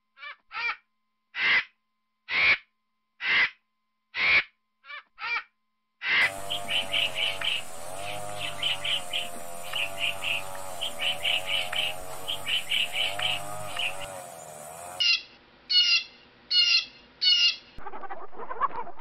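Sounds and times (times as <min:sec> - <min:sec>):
harsh rasping bird calls: 0:06.0 - 0:17.8
quick high bird calls: 0:06.1 - 0:17.7.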